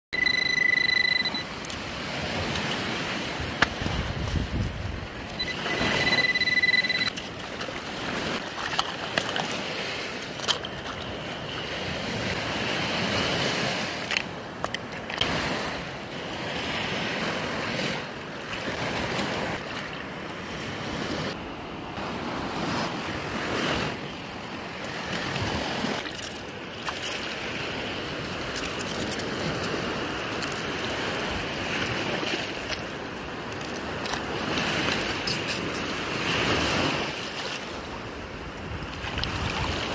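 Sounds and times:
metal detector beep: 0.1 - 1.8, 5.3 - 7.3
small waves washing on sand: 0.5 - 39.9
wind on microphone: 1.2 - 7.1, 38.3 - 39.9.

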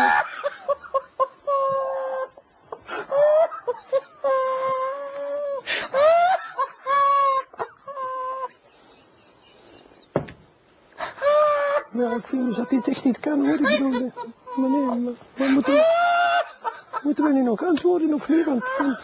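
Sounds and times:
man laughing stifled: 0.0 - 8.6, 11.0 - 19.0
short knock: 10.1 - 10.4.

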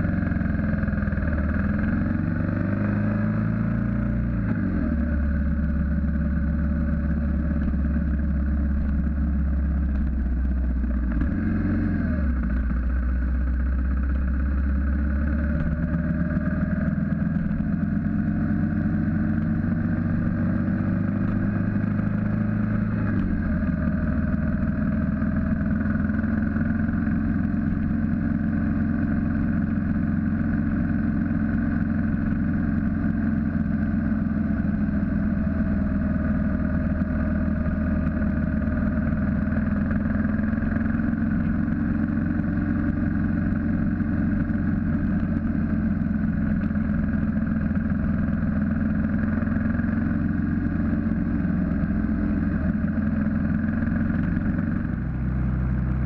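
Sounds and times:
motorcycle engine cruising: 0.0 - 56.0
road noise: 0.0 - 56.0.

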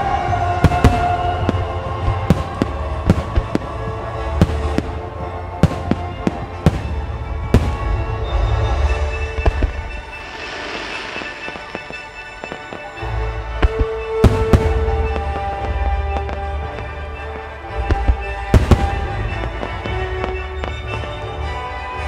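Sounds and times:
music playing: 0.0 - 22.0
firework shells bursting: 9.3 - 16.9.

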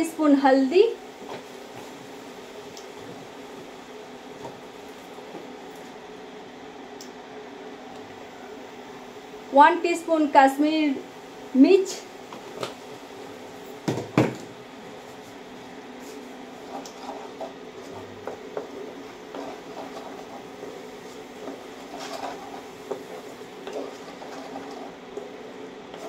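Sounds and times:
steady low hum: 0.0 - 26.0
spatula scraping paste in a pan: 16.6 - 26.0.

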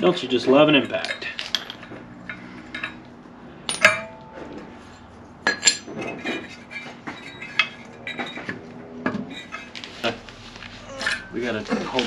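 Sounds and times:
metal nuts clinking on concrete: 0.0 - 3.1, 3.7 - 4.2, 5.4 - 8.6
metal parts rattling: 0.6 - 3.0, 3.7 - 8.6.

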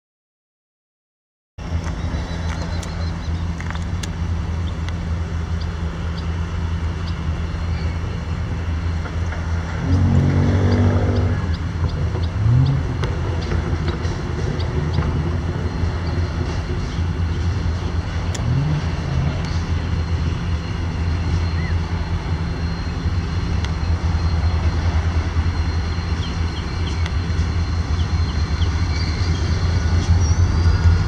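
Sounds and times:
diesel locomotive engines rumbling: 1.6 - 31.0.

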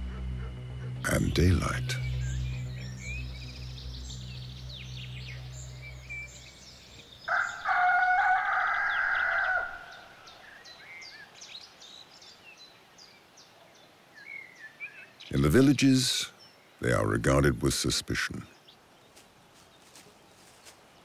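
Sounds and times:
small birds chirping: 0.0 - 21.0
rooster crowing: 7.3 - 10.2.

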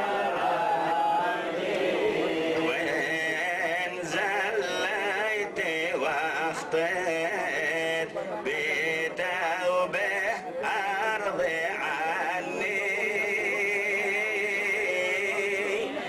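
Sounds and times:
man chanting into a microphone: 2.3 - 16.0.

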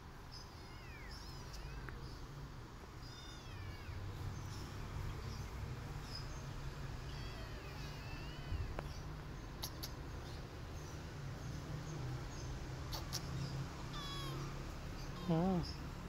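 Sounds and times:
kittens mewing: 0.5 - 2.3, 2.9 - 5.4, 6.9 - 10.6, 12.8 - 15.9.

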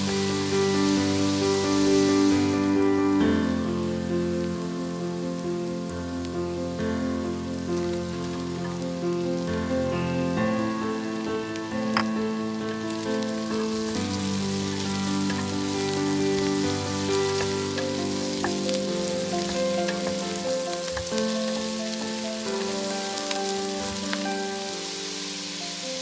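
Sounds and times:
soft background music: 0.0 - 26.0
vegetables sizzling in a pot: 0.0 - 26.0
wooden spatula stirring: 13.8 - 22.7.

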